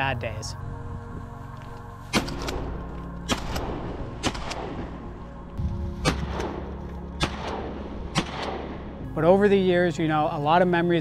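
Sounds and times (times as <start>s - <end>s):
background music: 0.0s - 11.0s
shotgun shots: 2.1s - 5.0s, 6.0s - 8.9s.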